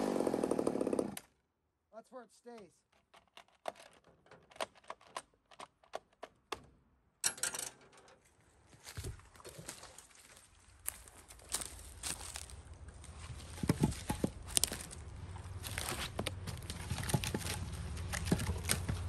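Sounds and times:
hands clicking on chainsaw: 16.1 - 19.0.

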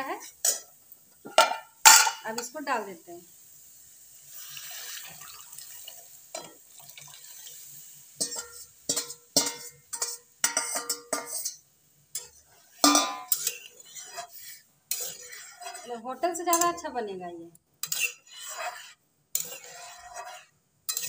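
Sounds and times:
metal bowl clanking on pan: 0.4 - 2.6, 6.3 - 6.6, 8.2 - 11.6, 12.2 - 16.8, 17.8 - 18.8, 19.4 - 21.0
liquid pouring into pan: 4.1 - 10.6.

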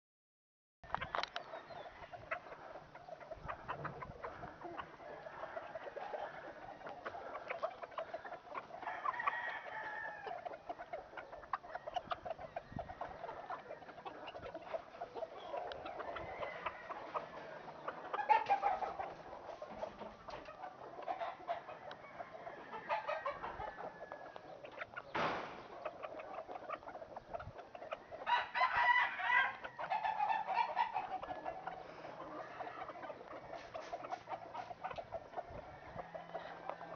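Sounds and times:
roosters clucking and calling: 0.8 - 36.9
rooster crowing: 8.8 - 10.4, 16.0 - 17.3, 21.8 - 24.4, 28.1 - 30.5.

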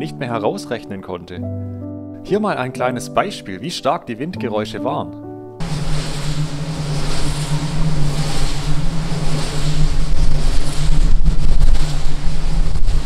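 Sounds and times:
wind buffeting microphone: 5.6 - 13.0.

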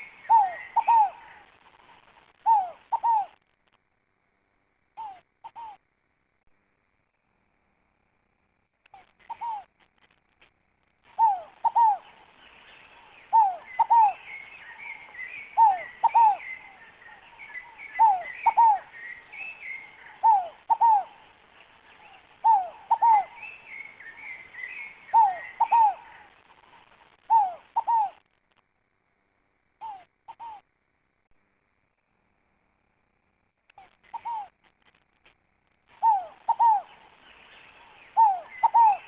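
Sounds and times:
dove cooing: 0.0 - 3.5, 5.0 - 5.8, 9.0 - 9.7, 11.0 - 28.2, 29.8 - 30.6, 33.8 - 34.6, 35.9 - 39.0
small birds twittering: 0.0 - 3.5, 11.0 - 28.2, 29.8 - 30.7, 33.7 - 35.1, 35.9 - 39.0.

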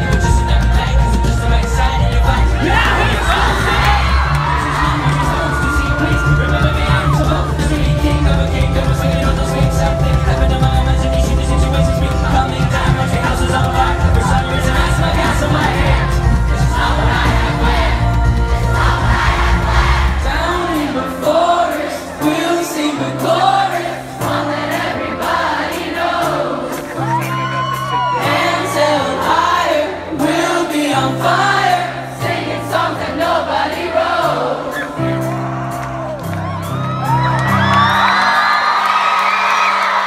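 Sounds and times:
bass line: 0.0 - 21.2
drums: 0.0 - 40.0
live band music: 0.0 - 40.0
singing with crowd voices: 0.0 - 40.0
crowd cheering and whooping: 2.4 - 8.2, 26.6 - 29.5, 34.7 - 40.0.

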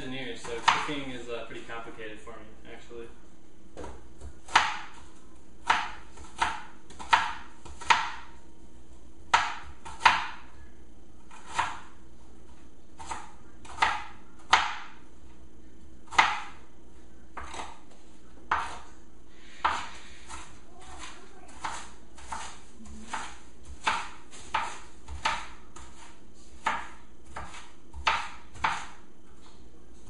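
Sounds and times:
knife chopping onion on cutting board: 0.4 - 1.0, 3.8 - 8.4, 9.3 - 10.5, 11.2 - 12.0, 13.0 - 15.0, 16.0 - 16.7, 17.4 - 29.6.

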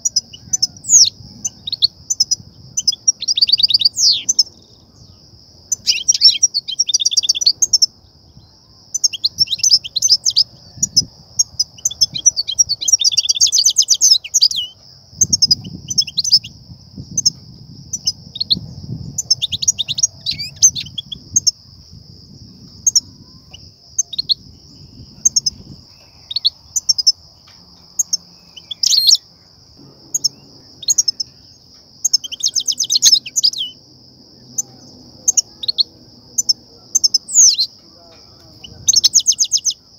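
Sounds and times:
steady high hiss: 0.0 - 39.9
goldfinch twittering and chirping: 5.7 - 7.9, 11.7 - 16.5, 19.2 - 21.5, 32.0 - 33.8.

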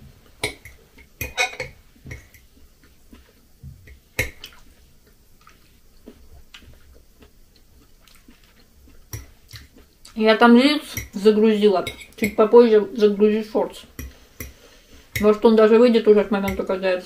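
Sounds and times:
quiet chewing: 2.2 - 10.2.

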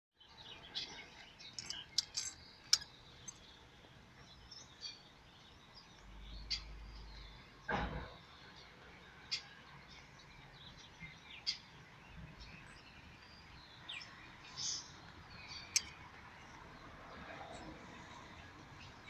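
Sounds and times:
light rain on wet street: 8.3 - 19.0.

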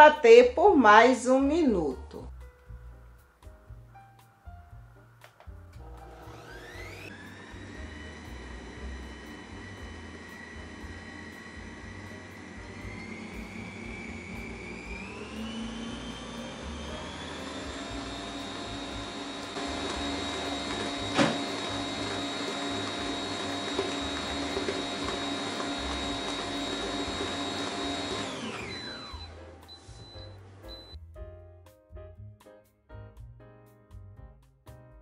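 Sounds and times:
stand mixer motor whine: 5.8 - 31.0.

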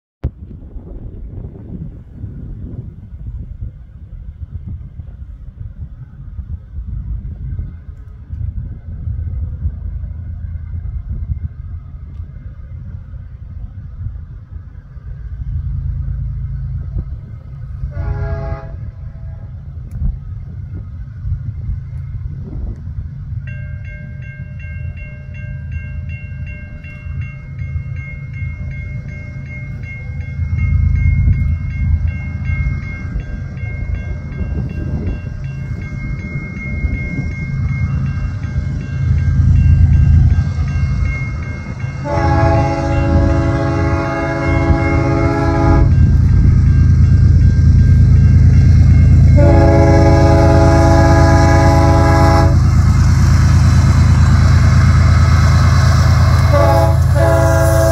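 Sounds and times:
diesel locomotive engine rumble: 0.2 - 57.9
train horn blasts: 17.8 - 19.7, 42.0 - 46.3, 49.1 - 52.8, 56.3 - 57.9.

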